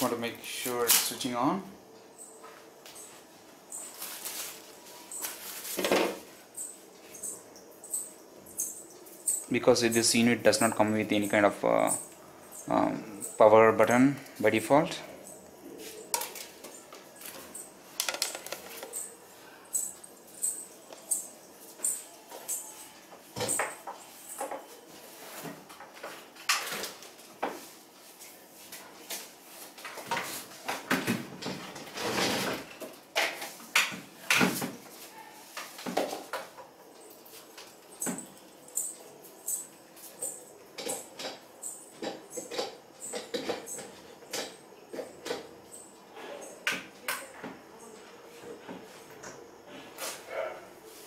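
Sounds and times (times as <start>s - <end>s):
handling clicks knocks and rustling: 16.1s - 19.1s.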